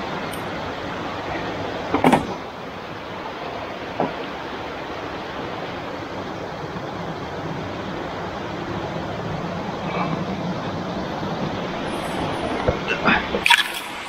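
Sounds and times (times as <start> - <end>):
stream rushing over rocks: 0.0 - 14.0.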